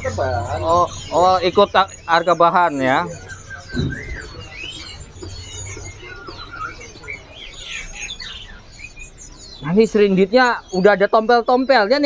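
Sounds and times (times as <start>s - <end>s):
songbirds chirping and whistling: 0.0s - 12.0s
low knock: 3.7s - 4.6s.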